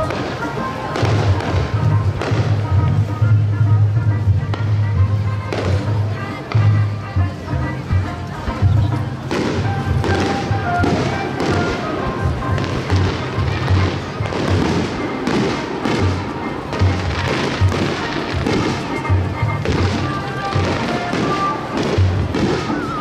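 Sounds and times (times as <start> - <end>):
fireworks bursting and crackling: 0.0 - 3.5, 9.2 - 23.0
music: 0.0 - 23.0.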